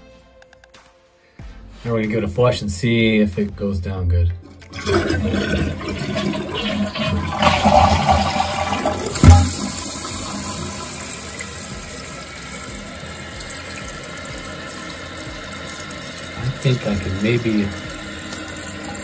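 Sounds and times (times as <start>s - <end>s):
toilet flushing: 4.4s - 19.0s
toilet tank refilling hiss: 4.6s - 19.0s
toilet flapper thump: 9.1s - 9.7s.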